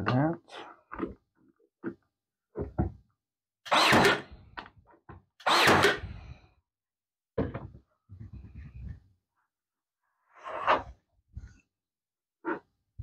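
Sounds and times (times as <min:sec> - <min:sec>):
nail gun firing: 0:03.7 - 0:04.3, 0:05.4 - 0:06.0.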